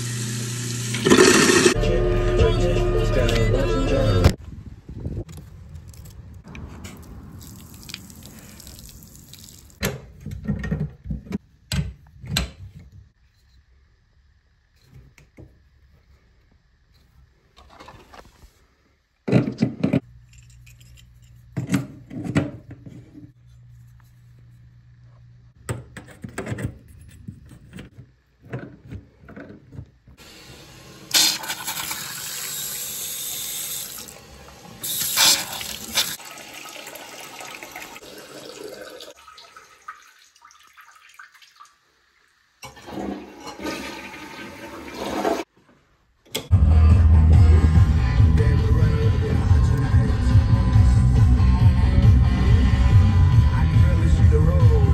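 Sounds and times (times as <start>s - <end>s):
water rushing into toilet tank: 0.0s - 1.8s, 31.1s - 41.8s, 42.6s - 45.5s.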